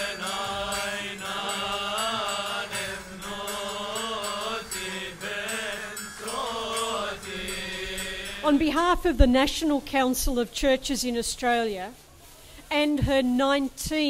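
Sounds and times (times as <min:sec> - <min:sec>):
person chanting a slow melody: 0:00.0 - 0:08.6.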